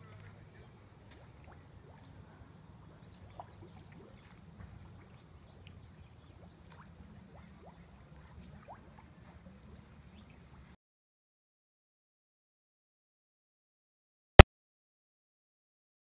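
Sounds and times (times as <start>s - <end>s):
pool water sloshing: 0.0s - 10.8s
water drips: 0.1s - 10.7s.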